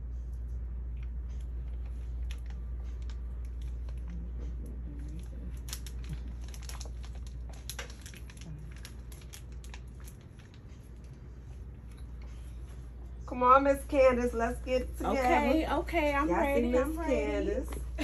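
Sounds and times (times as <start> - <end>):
plastic packaging crinkling: 5.0 - 11.3.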